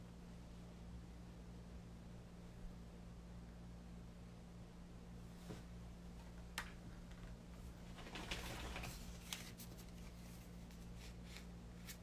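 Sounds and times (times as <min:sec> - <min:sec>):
steady low hum: 0:00.0 - 0:12.0
faint rustling: 0:07.2 - 0:12.0.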